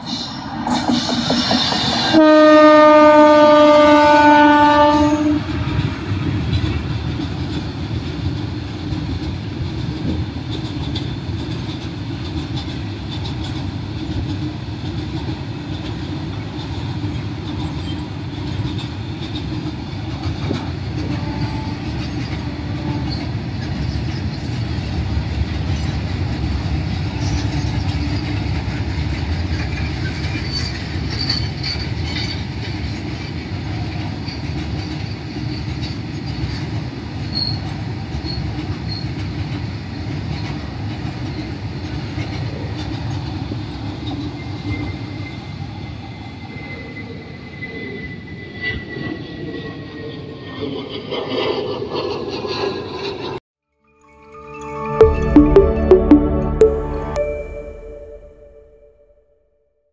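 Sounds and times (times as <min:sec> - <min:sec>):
train wheels rumbling on rail: 0:00.0 - 0:47.2.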